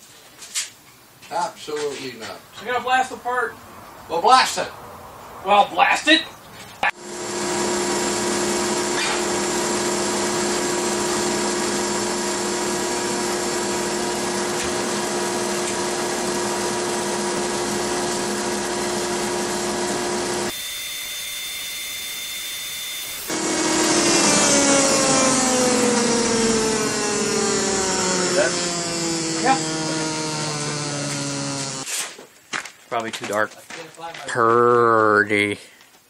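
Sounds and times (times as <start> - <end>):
machine hum: 6.9 - 31.8
whine falling in pitch: 20.2 - 31.8.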